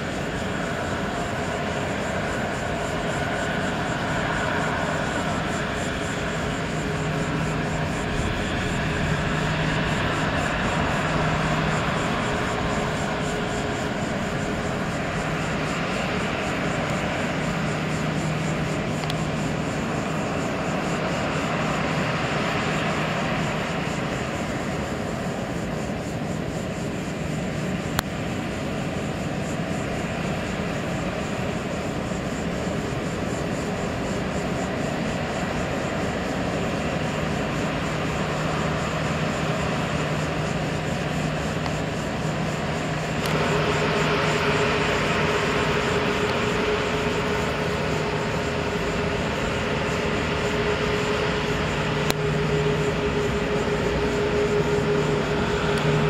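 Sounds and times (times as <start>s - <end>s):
jet engines rumbling: 0.0s - 56.0s
steady tone: 3.8s - 18.5s, 41.9s - 56.0s.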